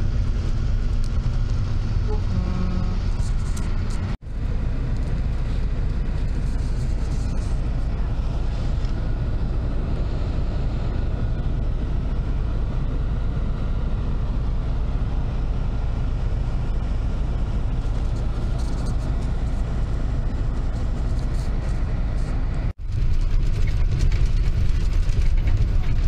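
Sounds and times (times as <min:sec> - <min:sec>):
car engine and road noise: 0:00.0 - 0:26.0.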